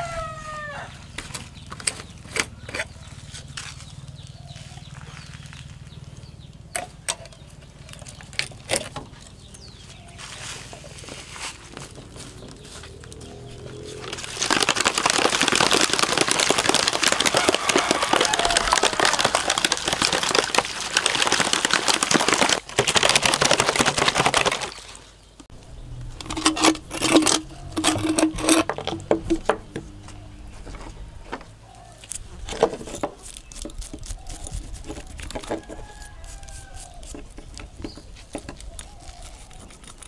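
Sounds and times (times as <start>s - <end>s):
water sloshing in plastic bottle: 13.6s - 25.4s
toothbrush scrubbing pliers: 38.8s - 40.0s.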